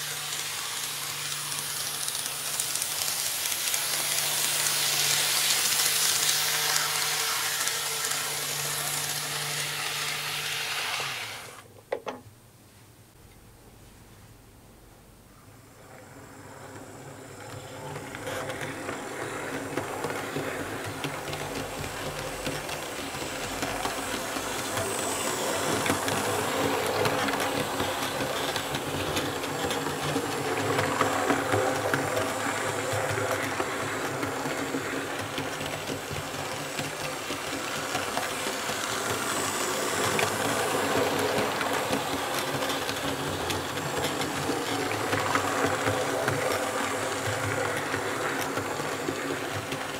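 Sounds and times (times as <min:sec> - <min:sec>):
model train motor whir: 0:00.0 - 0:11.6, 0:15.9 - 0:49.9
wheels clattering on rails: 0:16.7 - 0:49.9.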